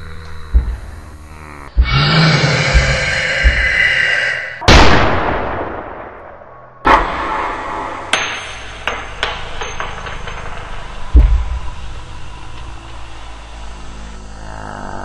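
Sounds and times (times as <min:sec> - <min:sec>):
steady low drone: 0:00.0 - 0:15.0
heavy low thud: 0:00.4 - 0:04.0, 0:11.0 - 0:12.5.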